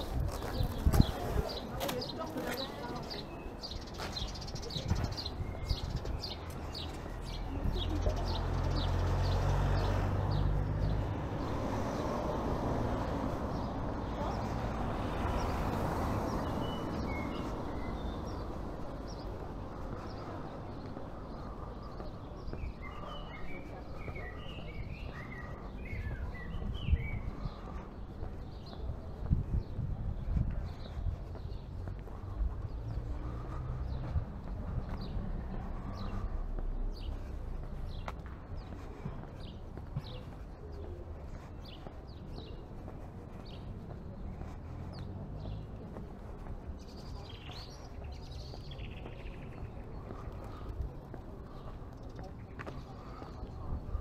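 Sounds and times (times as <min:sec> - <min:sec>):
steady traffic noise: 0:00.0 - 0:54.0
small birds chirping: 0:00.3 - 0:54.0
vehicle engine rumbling past: 0:08.0 - 0:13.4.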